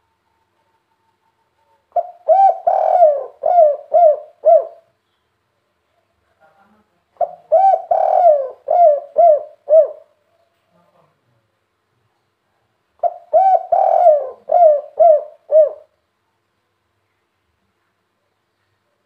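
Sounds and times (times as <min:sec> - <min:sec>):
dove cooing: 0:01.9 - 0:04.9, 0:07.2 - 0:10.2, 0:13.0 - 0:16.0.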